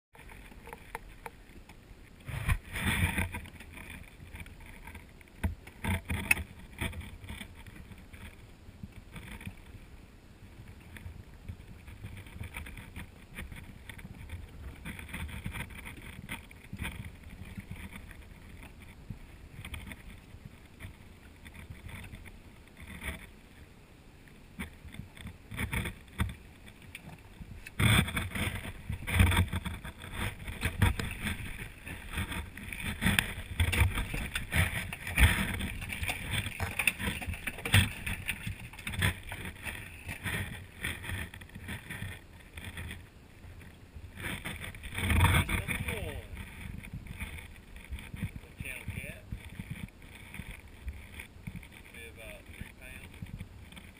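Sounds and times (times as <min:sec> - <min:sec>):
gear knocking in boat: 0:00.2 - 0:09.9, 0:10.6 - 0:23.4, 0:24.6 - 0:53.9
water lapping against boat hull: 0:00.2 - 0:53.9
rapid splashing: 0:24.6 - 0:43.0.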